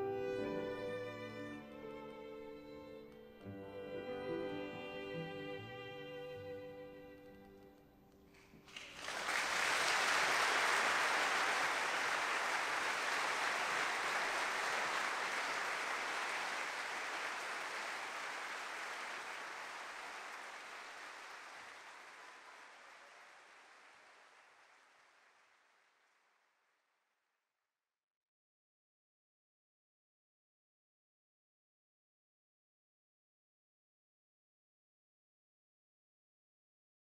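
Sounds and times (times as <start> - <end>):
audience applauding: 8.3 - 26.2.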